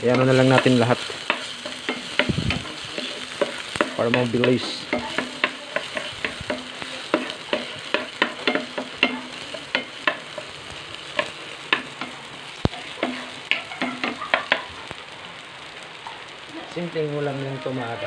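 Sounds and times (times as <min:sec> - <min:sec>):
spatula tapping and scraping pan: 0:00.0 - 0:14.9
food sizzling in frying pan: 0:00.0 - 0:18.0.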